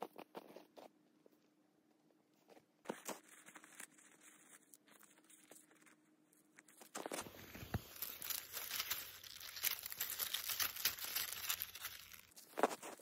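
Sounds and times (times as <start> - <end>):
crunching in snow: 6.7 - 13.0.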